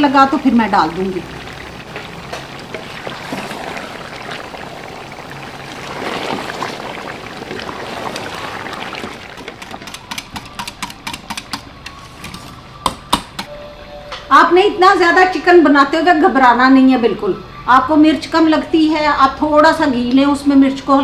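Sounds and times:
spatula stirring: 0:01.8 - 0:12.7
whisk clicking against pan: 0:09.4 - 0:12.4.

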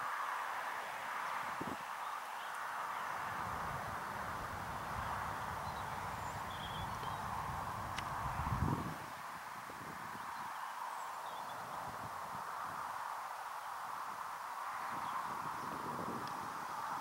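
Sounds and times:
steady hiss: 0:00.0 - 0:17.0
wind rumble on microphone: 0:01.3 - 0:01.9, 0:02.9 - 0:10.6, 0:11.2 - 0:13.0, 0:14.6 - 0:17.0
faint bird chirps: 0:04.8 - 0:07.3.

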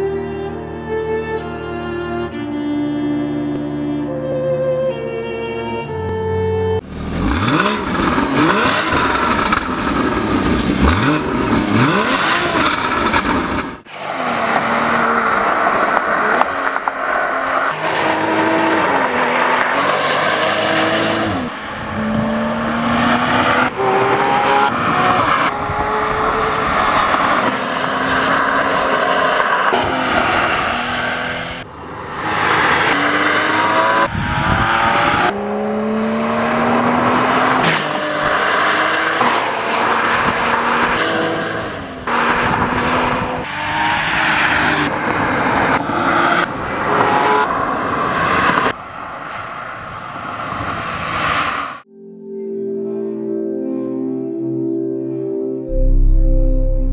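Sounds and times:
car engine revving and accelerating: 0:06.8 - 0:51.9.

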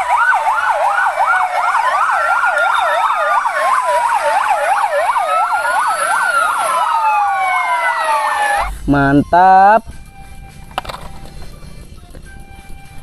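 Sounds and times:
siren fast yelp: 0:00.0 - 0:08.8
siren slow wails: 0:00.0 - 0:11.4, 0:12.0 - 0:13.0.

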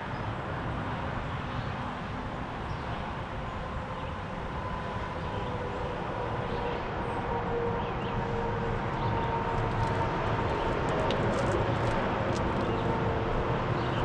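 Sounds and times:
distant traffic rumble: 0:00.0 - 0:14.0.

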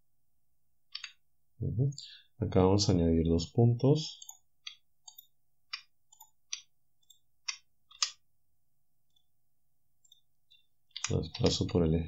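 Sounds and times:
mouse and keyboard clicks: 0:04.2 - 0:08.2.

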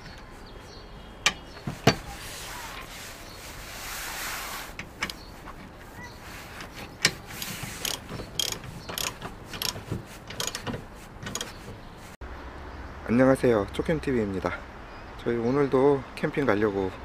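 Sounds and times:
ratchet wrench clicking: 0:07.0 - 0:11.6.

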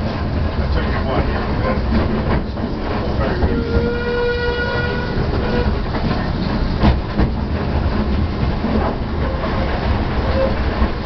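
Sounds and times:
locomotive engine rumble: 0:00.0 - 0:11.0
wheels clacking over rail joints: 0:00.0 - 0:11.0.

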